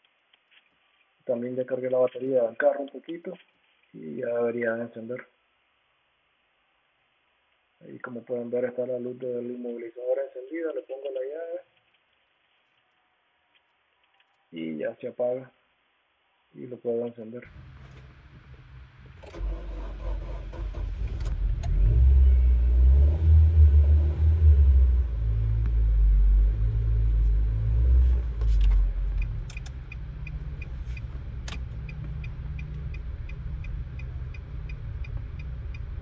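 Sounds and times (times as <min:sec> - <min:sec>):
car engine starting and idling: 0:17.5 - 0:36.0
even ticking: 0:28.8 - 0:36.0.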